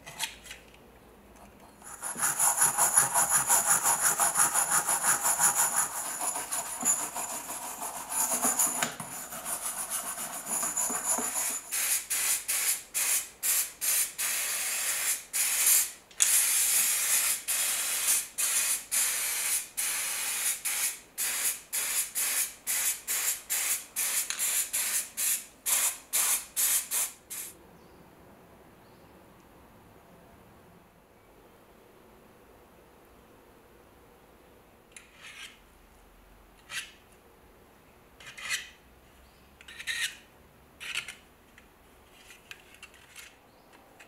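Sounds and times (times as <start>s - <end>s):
wire brush scrubbing metal: 1.8s - 11.7s
aerosol can spraying: 1.8s - 27.5s.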